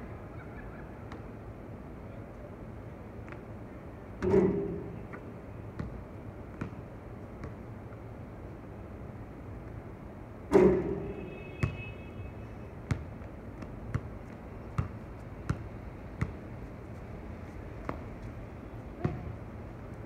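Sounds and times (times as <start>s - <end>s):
basketball clanging on metal rim: 4.2s - 5.1s, 10.5s - 11.2s
basketball bouncing on hard court: 5.8s - 6.8s, 11.6s - 11.9s, 12.9s - 16.4s, 19.0s - 19.4s.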